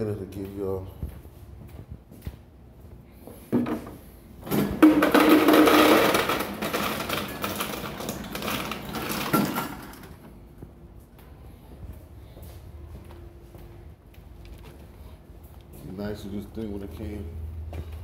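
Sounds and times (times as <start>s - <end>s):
ice machine motor hum: 4.5s - 10.4s
ice cubes clattering: 4.8s - 10.1s.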